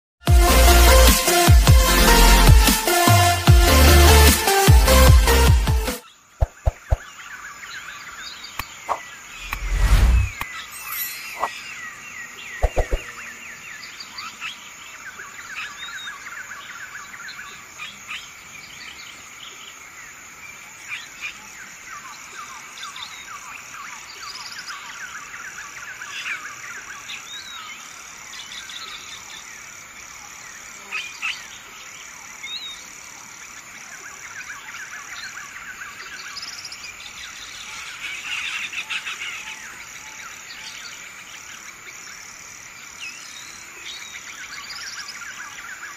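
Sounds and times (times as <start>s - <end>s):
animals chirping: 6.4s - 7.1s, 12.6s - 13.4s.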